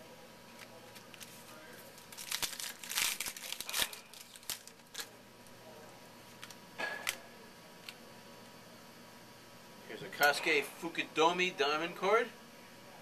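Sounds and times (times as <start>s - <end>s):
wrapper tearing and crinkling: 0.9s - 5.2s.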